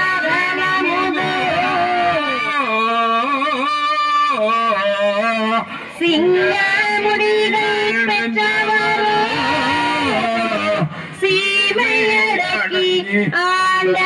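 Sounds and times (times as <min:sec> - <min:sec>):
devotional chanting: 0:00.0 - 0:14.0.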